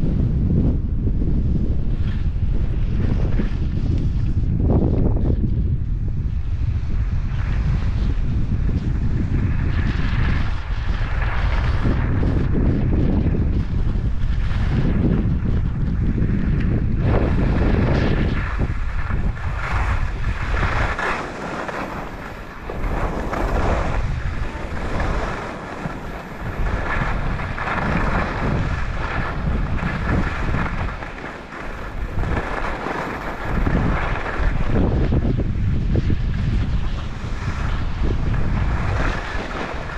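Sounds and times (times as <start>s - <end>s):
wind buffeting microphone: 0.0s - 39.9s
skis carving through snow: 0.1s - 39.9s.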